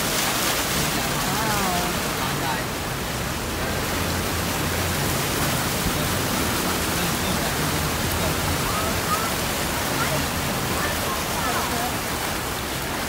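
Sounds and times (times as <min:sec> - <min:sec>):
tyres splashing through water: 0:00.0 - 0:13.0.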